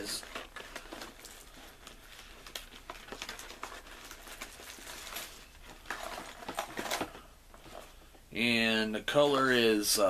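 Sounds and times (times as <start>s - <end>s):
plastic packaging crinkling: 0.0s - 8.0s.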